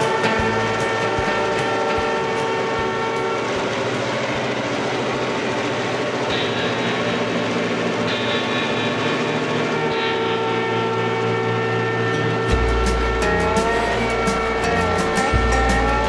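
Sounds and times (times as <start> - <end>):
bass and drum beat: 0.0 - 4.5, 12.3 - 16.0
held music tones: 0.0 - 16.0.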